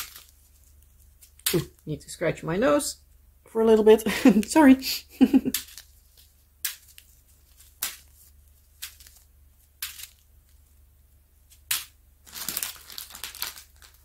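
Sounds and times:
plastic bags crinkling: 0.0s - 1.6s, 5.4s - 10.7s, 11.5s - 14.0s.

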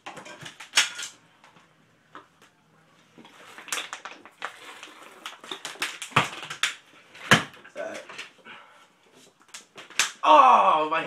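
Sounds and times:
loud crack: 9.5s - 10.3s.

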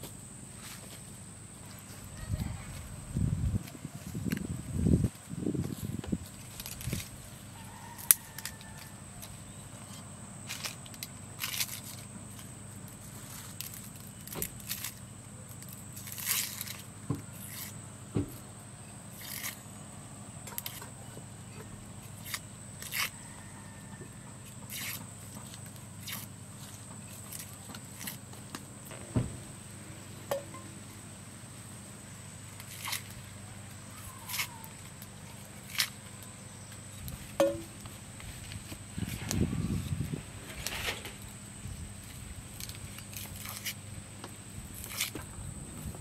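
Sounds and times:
knife scraping onion skin: 16.0s - 17.8s, 19.1s - 19.7s, 22.2s - 23.2s, 24.6s - 25.1s, 26.0s - 26.3s, 32.6s - 33.2s, 34.1s - 34.6s, 42.6s - 43.8s, 44.8s - 45.2s.

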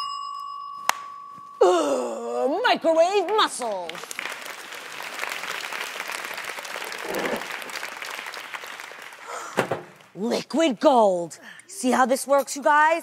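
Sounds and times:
audience applauding: 3.3s - 10.1s.

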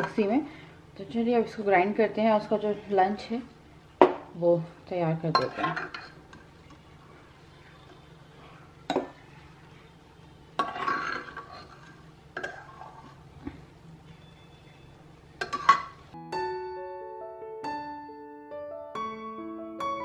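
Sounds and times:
faint steady hum: 0.0s - 16.2s
spoon clinking and scraping pot: 5.4s - 6.8s, 10.6s - 13.2s, 15.4s - 16.0s.

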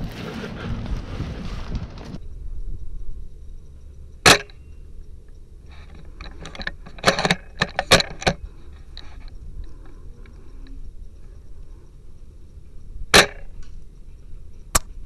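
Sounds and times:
metallic bolt clicks and rattles: 5.9s - 8.4s.

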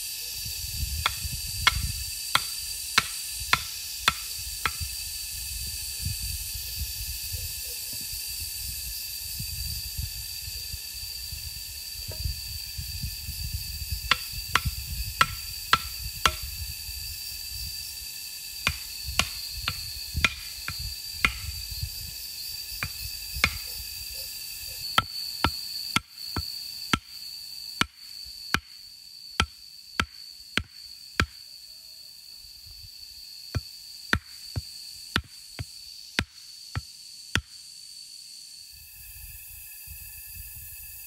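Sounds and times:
hatchet chopping bamboo: 1.0s - 4.9s, 14.1s - 16.5s, 18.6s - 21.5s, 22.8s - 23.6s, 24.8s - 27.2s, 27.8s - 28.8s, 29.4s - 31.4s, 33.6s - 37.6s.

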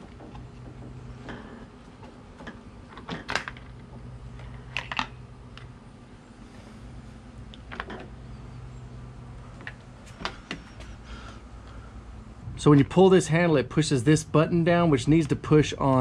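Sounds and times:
plastic parts clicking and knocking: 0.0s - 5.7s
faint low hum: 0.0s - 16.0s.

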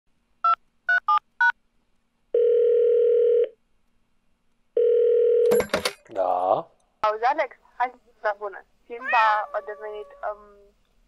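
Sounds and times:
telephone ringback tone: 2.4s - 3.5s, 4.8s - 5.6s.

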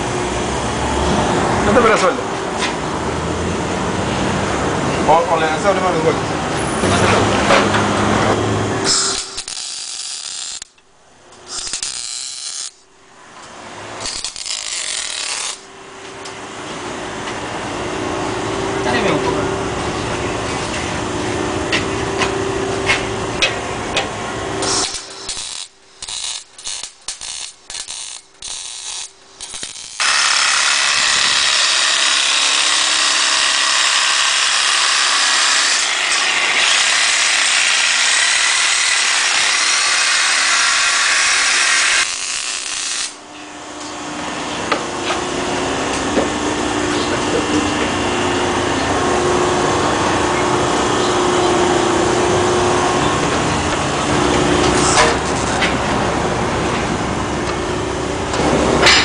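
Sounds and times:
machine hum: 0.0s - 59.0s.

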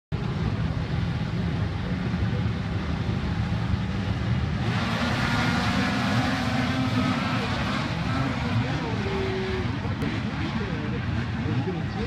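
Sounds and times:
snowmobile engines idling: 0.2s - 12.0s
snowmobile engines revving: 0.9s - 12.0s.

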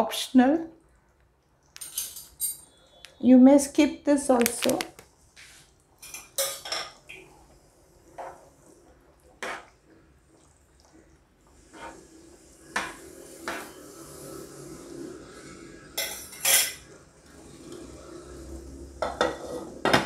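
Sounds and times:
spoon scraping a pan: 8.1s - 8.5s, 9.3s - 9.8s, 11.6s - 14.2s, 15.8s - 17.0s, 19.0s - 20.0s.

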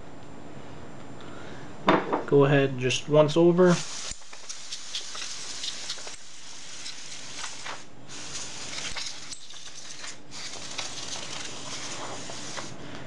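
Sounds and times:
compressed air can hissing: 3.7s - 12.8s.

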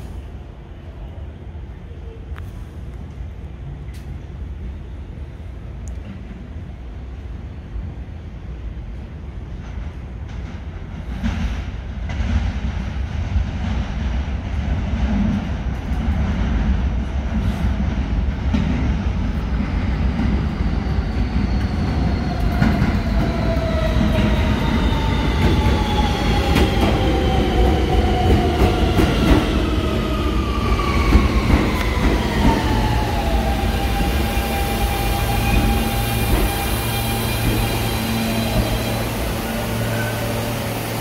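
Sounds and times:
subway train motors whining: 0.0s - 41.0s
rail clicks: 21.1s - 41.0s.

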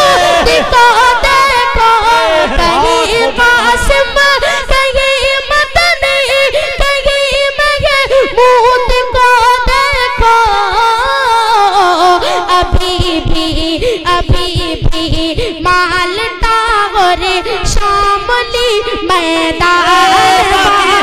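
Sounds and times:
boy singing into a microphone: 0.0s - 21.0s.

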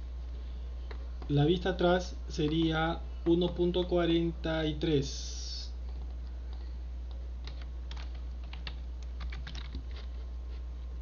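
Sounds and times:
steady low hum: 0.0s - 11.0s
keyboard typing: 2.4s - 4.0s, 5.8s - 10.1s.

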